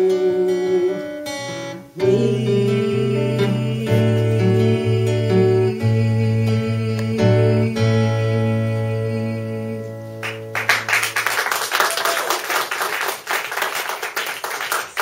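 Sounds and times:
acoustic guitar chord ringing: 0:00.0 - 0:11.1
audience applause: 0:10.2 - 0:15.0.

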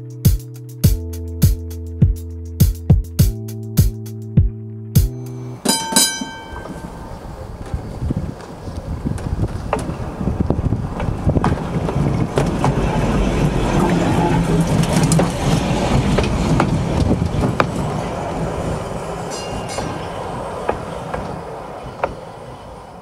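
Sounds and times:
streetcar rumbling: 0:05.2 - 0:23.0
wheels clicking on track: 0:05.6 - 0:23.0.

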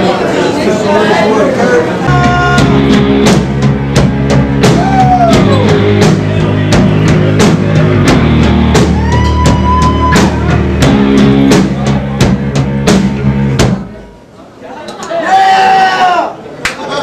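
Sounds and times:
distorted electric guitar: 0:02.0 - 0:14.1
drum kit beating steadily: 0:02.0 - 0:14.3.

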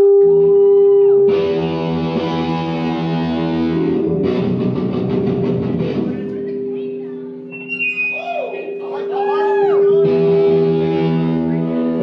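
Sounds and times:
distorted electric guitar: 0:00.0 - 0:12.0
guitar feedback tone: 0:00.0 - 0:12.0.

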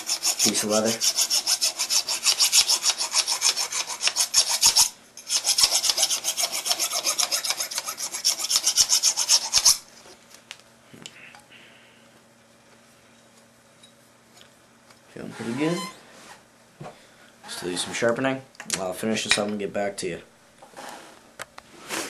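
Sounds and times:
metal file rasping on steel: 0:00.0 - 0:09.8.

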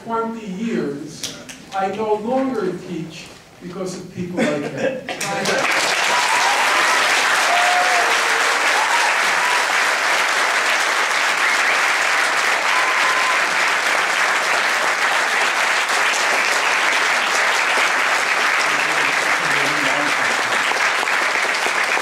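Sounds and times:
audience applauding: 0:05.1 - 0:22.0.

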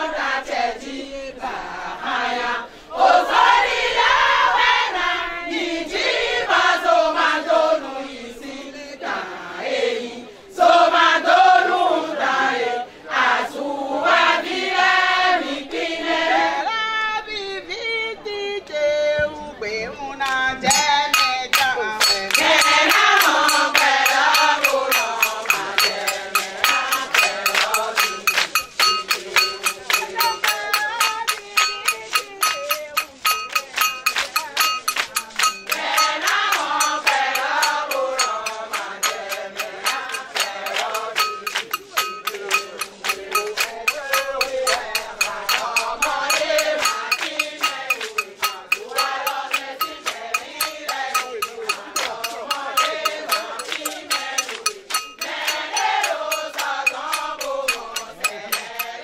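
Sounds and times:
women singing together: 0:00.0 - 0:59.0
hand clapping beat: 0:20.2 - 0:59.0.

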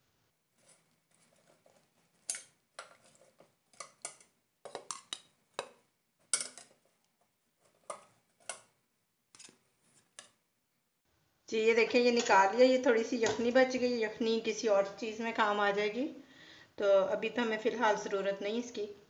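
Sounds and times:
metal tongs clinking in a pot: 0:02.2 - 0:06.8, 0:07.8 - 0:08.7.

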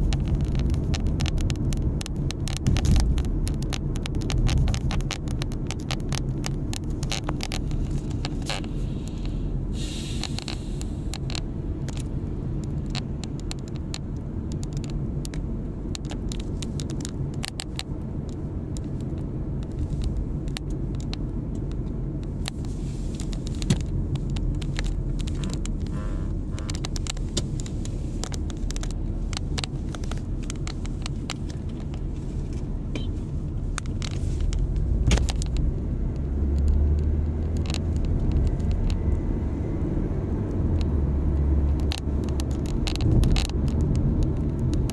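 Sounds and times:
small clicks and rattles: 0:00.0 - 0:09.4, 0:10.2 - 0:39.6, 0:40.3 - 0:44.9
car road and engine rumble: 0:00.0 - 0:44.9.

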